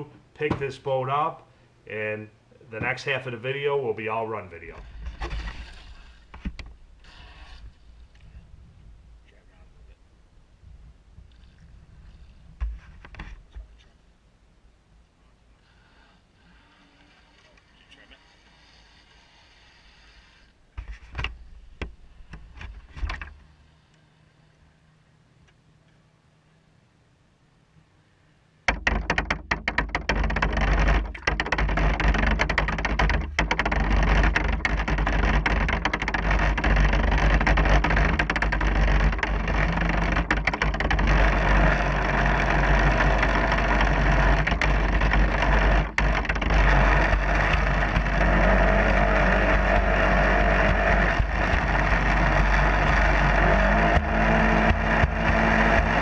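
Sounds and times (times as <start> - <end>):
soft knocks: 28.7 - 56.0.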